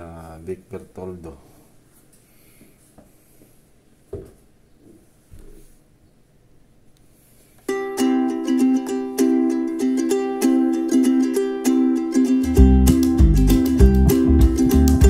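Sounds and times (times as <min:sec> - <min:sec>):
soft knocks: 0:04.1 - 0:05.6
plucked string instrument music: 0:07.7 - 0:15.0.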